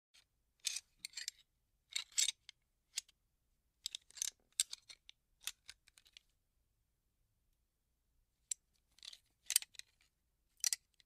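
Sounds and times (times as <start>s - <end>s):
metal parts clicking: 10.6s - 11.0s.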